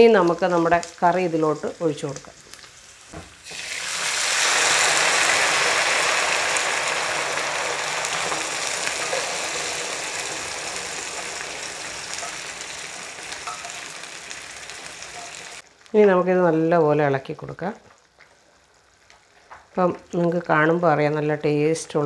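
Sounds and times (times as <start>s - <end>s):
hot oil sizzling in pan: 0.0s - 16.0s.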